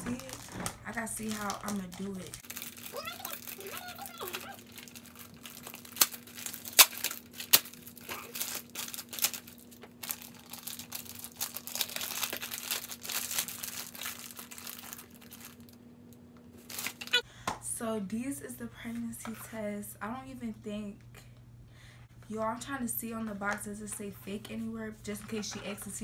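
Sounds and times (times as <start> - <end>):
cardboard and wrapping crinkling: 0.0 - 15.8, 16.6 - 17.2.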